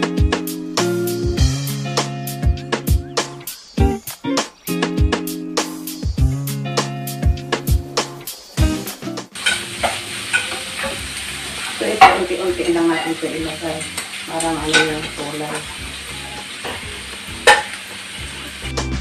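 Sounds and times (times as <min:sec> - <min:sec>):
fried rice sizzling in pan: 0:08.1 - 0:19.0
sharp utensil clacks: 0:09.4 - 0:11.0, 0:13.8 - 0:15.2, 0:16.6 - 0:17.8.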